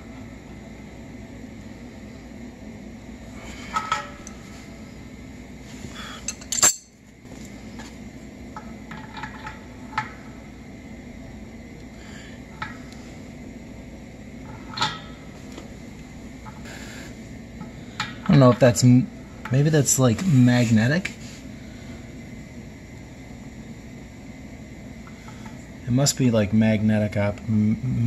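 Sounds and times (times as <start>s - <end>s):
faint steady hum: 0.0s - 28.0s
metal wrench clinking: 6.2s - 7.0s.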